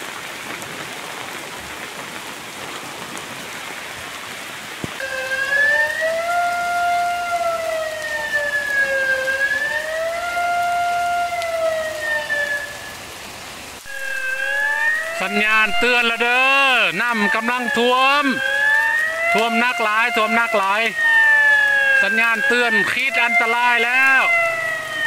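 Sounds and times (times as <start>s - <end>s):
heavy rain: 0.0s - 25.0s
warning siren wailing: 5.0s - 25.0s.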